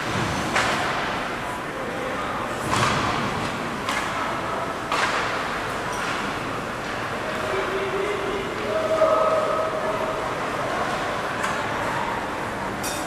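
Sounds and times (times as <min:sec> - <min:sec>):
hockey sticks hitting puck: 0:00.0 - 0:01.2, 0:02.6 - 0:04.3, 0:04.9 - 0:07.0
background noise: 0:00.0 - 0:13.0.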